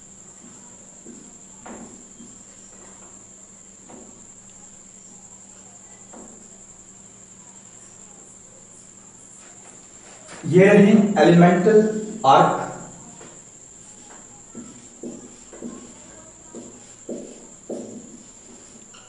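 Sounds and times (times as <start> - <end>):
cricket trilling: 0.0 - 19.0
faint low hum: 0.0 - 19.0
marker scraping on whiteboard: 14.6 - 19.0.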